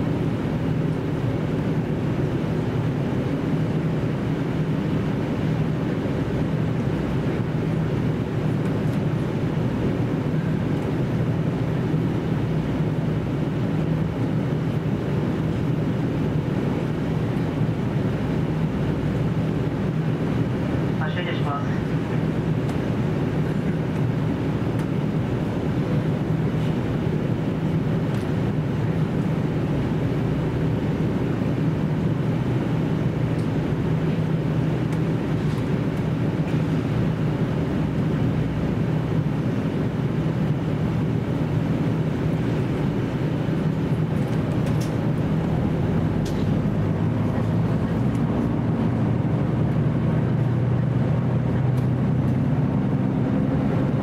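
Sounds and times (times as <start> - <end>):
diesel engine drone: 0.0 - 54.0
wheel and rail noise: 43.6 - 54.0.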